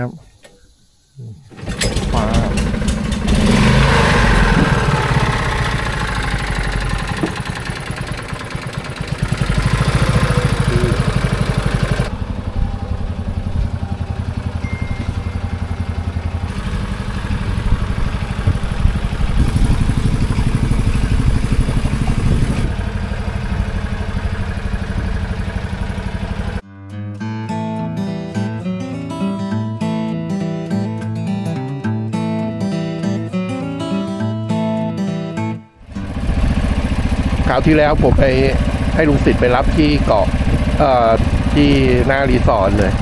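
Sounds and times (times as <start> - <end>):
boat engine running: 1.6 - 26.6, 35.8 - 43.0.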